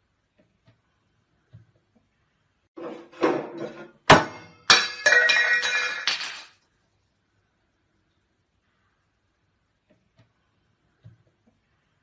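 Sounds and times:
hard objects clattering: 2.8 - 6.6
clinking and ringing: 4.4 - 6.5.

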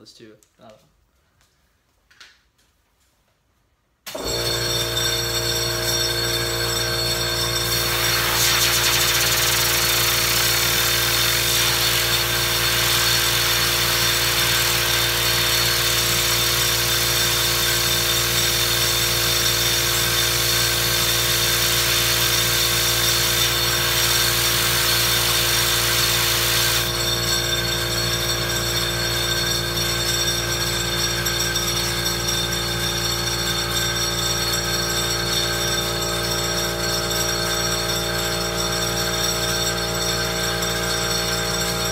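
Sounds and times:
air compressor humming: 4.1 - 41.8
compressed air hissing: 7.8 - 15.3.

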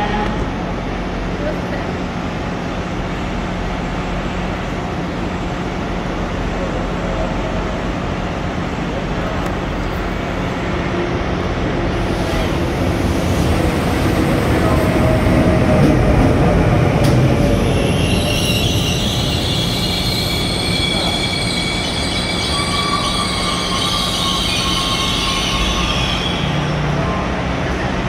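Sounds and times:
train rumbling on rails: 0.0 - 28.0
high-pitched brake squealing: 17.7 - 27.0.

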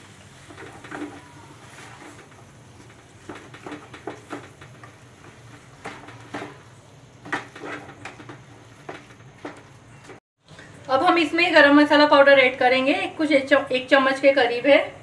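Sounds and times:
wooden spatula scraping a pan: 0.0 - 10.2.

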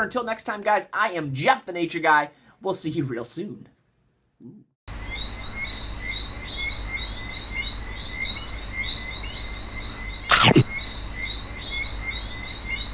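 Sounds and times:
steady high buzz: 4.9 - 12.9
animals chirping: 10.3 - 10.9.

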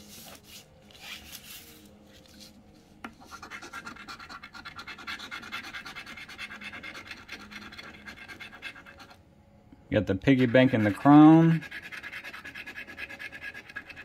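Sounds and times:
scratch-off ticket being scratched: 3.2 - 9.2, 10.2 - 14.0.

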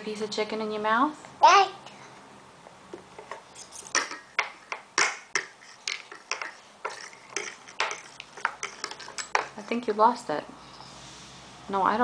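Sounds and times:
forks tapping on plastic tray: 3.9 - 10.0.

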